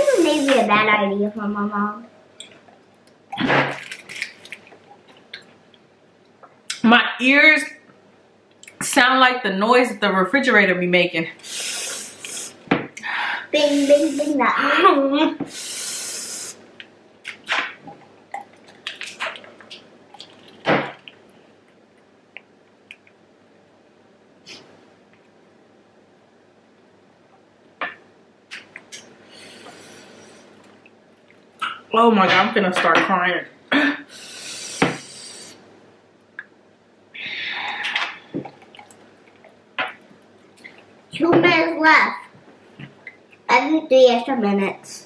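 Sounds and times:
hiss: 0.0 - 0.7, 11.4 - 12.6, 13.6 - 14.4, 15.5 - 16.6, 34.1 - 35.6
person gulping: 17.9 - 21.3, 37.7 - 39.6
loud breath out: 37.2 - 38.2.

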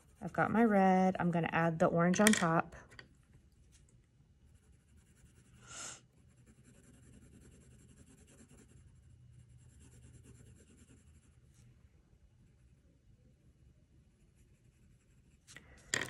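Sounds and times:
colored pencil scratching on paper: 0.0 - 0.7, 4.4 - 11.7, 14.0 - 15.6.

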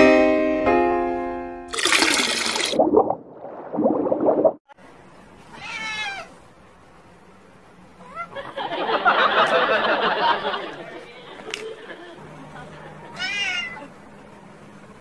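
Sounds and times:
cat meowing: 5.5 - 6.4, 8.0 - 8.4, 13.1 - 14.0.

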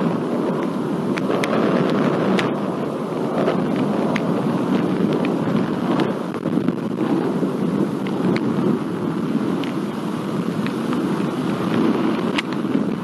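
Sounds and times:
rolling thunder rumble: 0.0 - 13.0
light sharp ticks: 0.5 - 2.6, 3.4 - 5.4, 8.0 - 8.5, 9.6 - 9.8, 10.6 - 11.1, 11.7 - 12.7.

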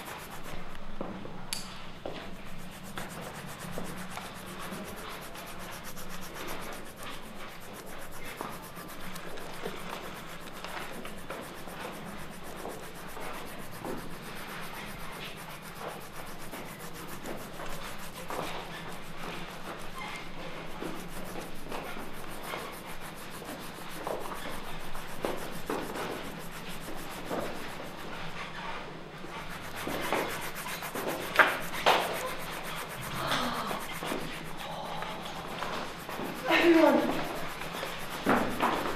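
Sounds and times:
paintbrushes scraping on canvas: 0.0 - 1.2, 1.9 - 38.9.

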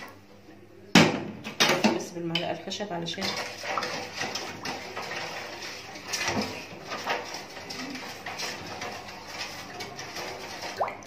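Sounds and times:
spoon stirring water in pot: 2.3 - 11.0.

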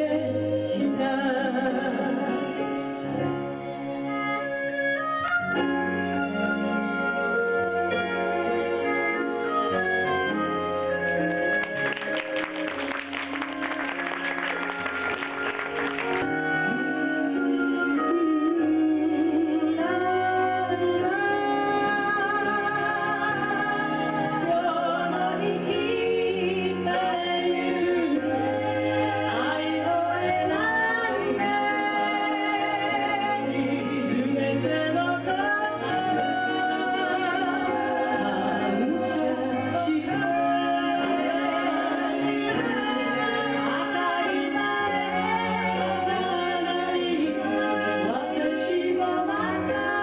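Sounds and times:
woman singing slow melody: 0.0 - 2.8, 16.6 - 50.0
instrumental accompaniment: 0.0 - 50.0.

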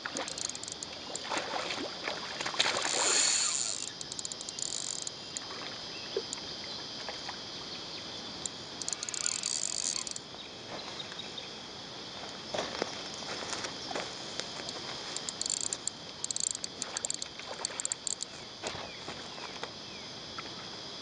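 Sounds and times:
river water rippling over rocks: 0.0 - 6.4
insects buzzing: 0.0 - 21.0
light clicks: 14.6 - 18.3.

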